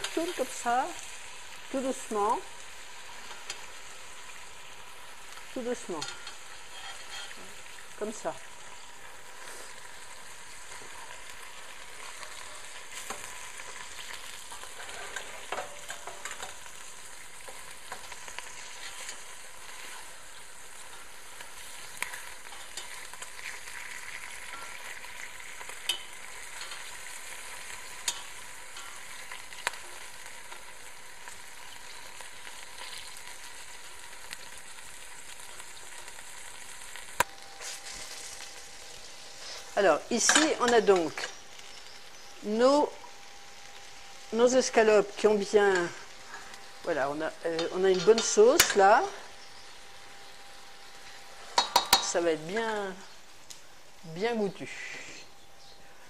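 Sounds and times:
meat frying in a pot: 0.0 - 56.0
tongs clicking against a pot: 6.0 - 7.4, 14.5 - 16.6, 20.9 - 25.0, 25.6 - 27.0, 27.6 - 29.8, 47.5 - 48.9, 51.5 - 52.2.

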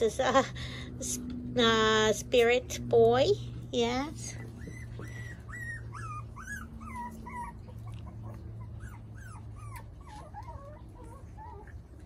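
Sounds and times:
puppies whimpering: 4.2 - 12.0.

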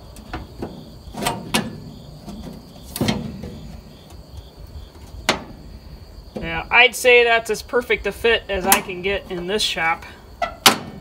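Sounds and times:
steel frame metallic clunks: 0.0 - 4.2, 5.0 - 6.6, 8.6 - 9.7, 10.4 - 11.0.

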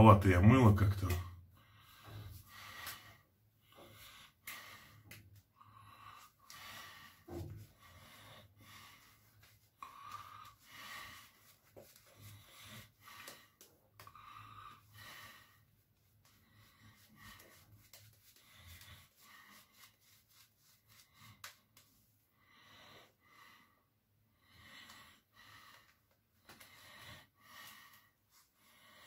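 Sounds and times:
shaving brush swishing: 9.2 - 13.0, 16.2 - 22.1.

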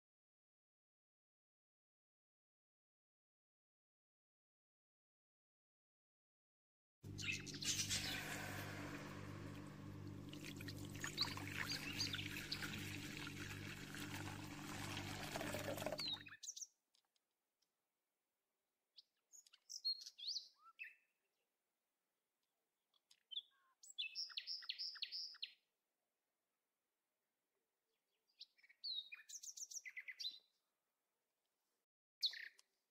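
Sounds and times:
small birds chirping: 7.1 - 9.8, 10.5 - 13.6, 19.0 - 21.1, 23.0 - 25.6, 28.1 - 30.5, 32.2 - 32.7
low hum and hiss: 7.1 - 16.0.

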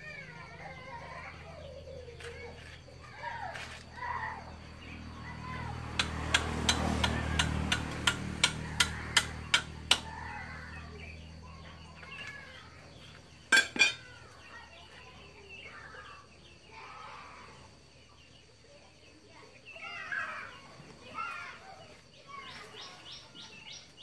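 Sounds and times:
machete striking bamboo: 6.0 - 10.2.

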